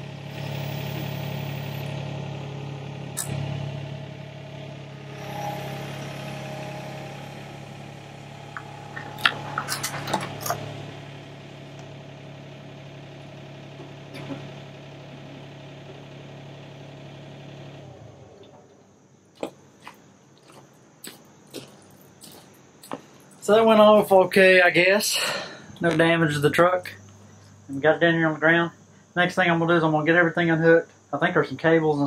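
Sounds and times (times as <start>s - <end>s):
excavator diesel engine running: 0.0s - 18.8s
sharp metal clanks: 8.3s - 10.8s.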